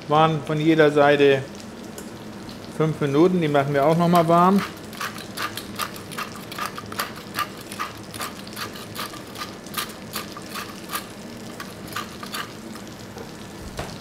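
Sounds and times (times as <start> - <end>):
meat sizzling in butter: 1.4 - 14.0
pepper mill grinding: 3.8 - 12.9.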